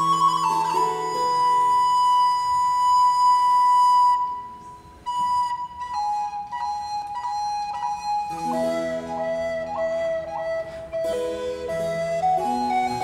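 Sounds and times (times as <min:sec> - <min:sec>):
recorders playing baroque music: 0:00.0 - 0:04.0, 0:05.0 - 0:13.0.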